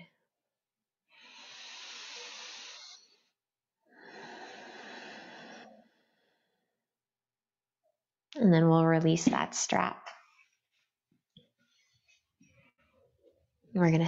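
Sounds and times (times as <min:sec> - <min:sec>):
woman breathing deeply: 0:01.1 - 0:06.8.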